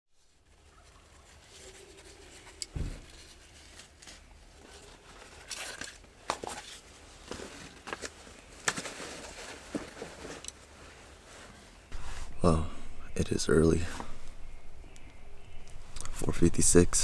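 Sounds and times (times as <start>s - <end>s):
clicks and rustling handling noise: 0.6s - 11.6s
thump: 2.7s - 3.1s.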